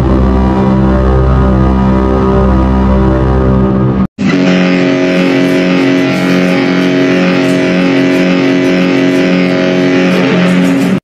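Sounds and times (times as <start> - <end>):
ship whistle blast: 4.2 - 11.0.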